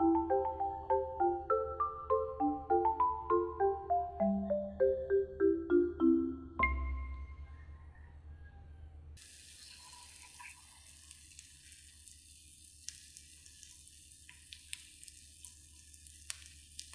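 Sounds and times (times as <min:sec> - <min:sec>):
marimba tune: 0:00.0 - 0:07.4
food sizzling in a frying pan: 0:09.2 - 0:16.9
small pops of frying: 0:09.2 - 0:16.9.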